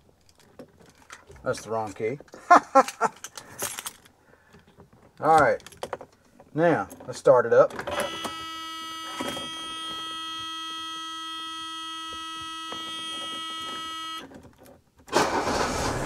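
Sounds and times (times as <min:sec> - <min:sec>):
electronic warning tone: 0:08.0 - 0:14.2
car engine cranking and starting: 0:15.0 - 0:16.0.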